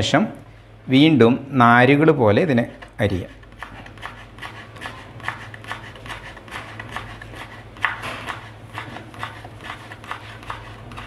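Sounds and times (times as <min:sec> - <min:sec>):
knife slicing on wooden board: 0:03.5 - 0:11.0.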